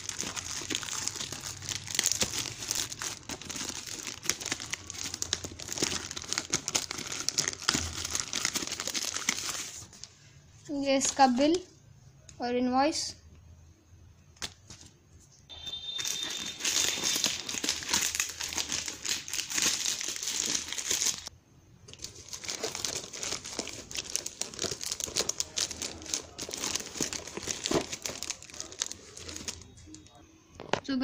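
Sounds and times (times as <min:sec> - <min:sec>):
plastic bag tearing and crinkling: 0:00.0 - 0:09.9, 0:16.0 - 0:21.3, 0:21.9 - 0:30.0.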